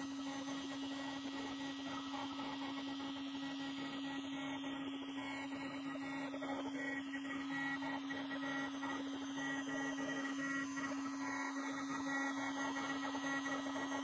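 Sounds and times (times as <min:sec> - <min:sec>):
router spindle whining: 0:00.0 - 0:14.0.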